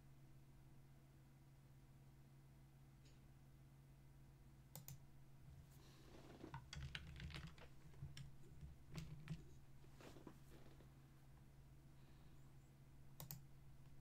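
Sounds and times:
computer keyboard tapping: 6.4s - 9.6s.

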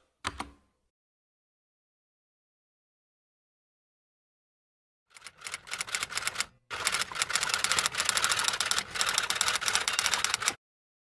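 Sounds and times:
typewriter keystroke clicks: 7.7s - 10.6s.

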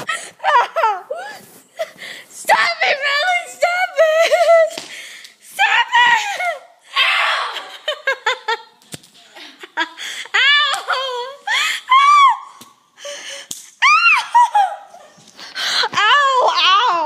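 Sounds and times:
girls giggling and squealing: 3.9s - 4.8s, 6.0s - 12.9s, 13.7s - 15.4s.

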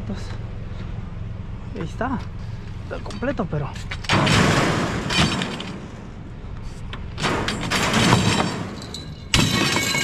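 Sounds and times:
metal frame clanking against trailer: 3.0s - 6.0s, 7.1s - 10.0s.

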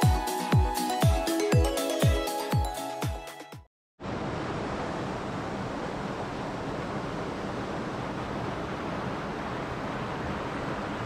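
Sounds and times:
rushing water: 4.0s - 11.0s.

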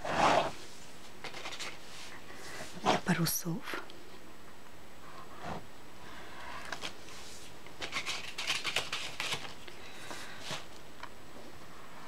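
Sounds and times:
palette knife scraping canvas: 0.0s - 0.6s.

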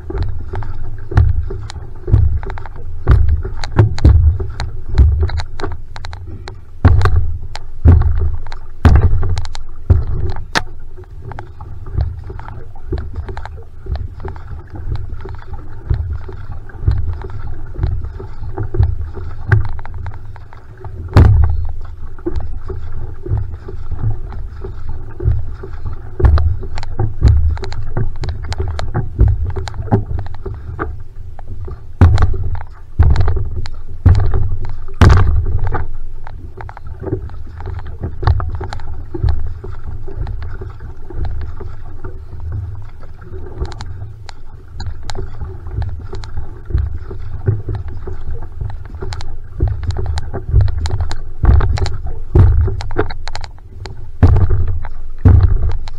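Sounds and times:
low surging rumble: 0.0s - 55.9s
paddle splashing through water: 0.0s - 55.9s
sharp clicks and knocks: 0.0s - 55.9s
water rushing along hull: 0.0s - 55.9s.

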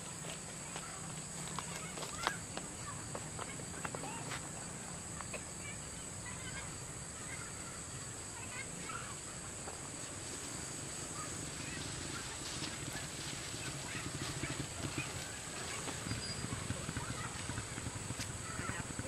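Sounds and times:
steady high hiss: 0.0s - 19.0s
faint bird chirps: 15.9s - 17.2s.

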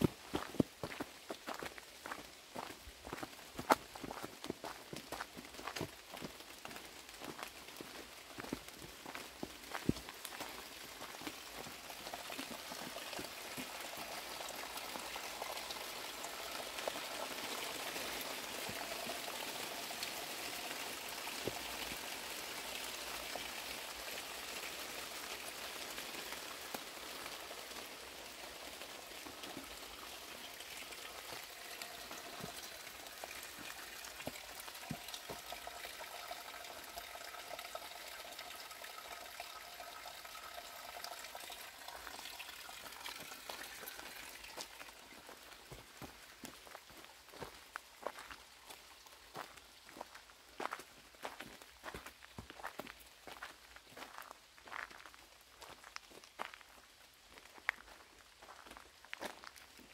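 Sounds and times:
water splashing into stone basin: 7.1s - 49.6s.

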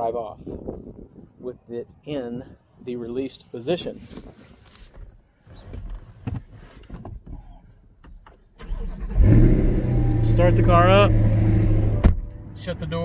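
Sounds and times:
light rustling and clicks: 4.0s - 8.5s
car engine cranking and idling: 7.9s - 13.0s.

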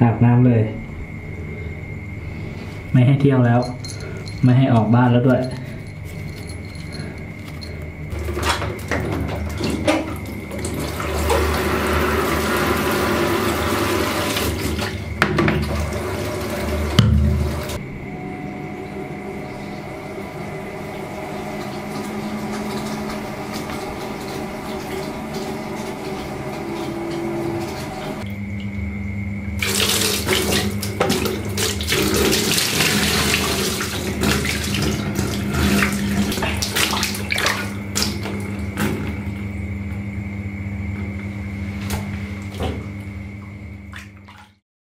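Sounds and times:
steady hum with held tones: 0.0s - 44.6s
water spraying into plastic bucket: 8.1s - 17.8s, 29.6s - 39.2s.

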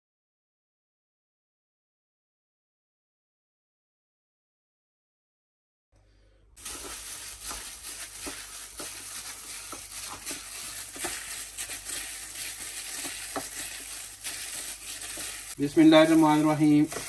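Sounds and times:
wet squishing of raw chicken: 6.6s - 15.6s
plastic glove crinkling: 6.6s - 17.0s.

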